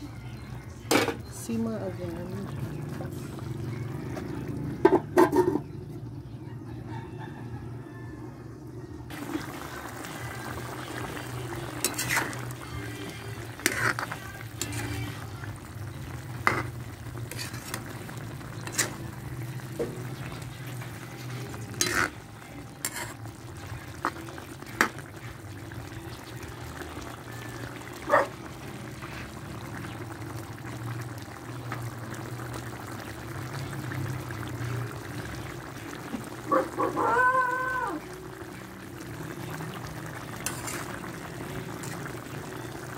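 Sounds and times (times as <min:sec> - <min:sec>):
rooster crowing: 0:06.4 - 0:08.6, 0:36.8 - 0:38.0
curry bubbling in a pan: 0:09.1 - 0:42.9.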